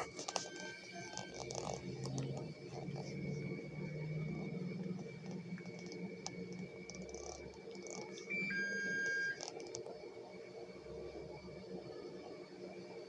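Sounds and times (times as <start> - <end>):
medical equipment beep: 0.0 - 1.9, 7.1 - 9.8
faint steady high tone: 0.0 - 4.6, 6.6 - 9.8.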